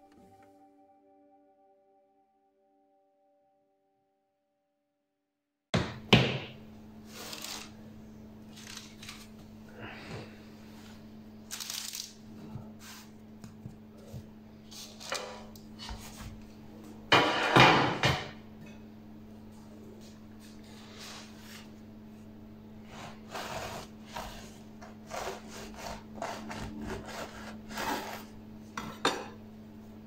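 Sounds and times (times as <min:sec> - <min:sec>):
paper rustling and crinkling: 0:07.1 - 0:07.8, 0:08.5 - 0:09.4.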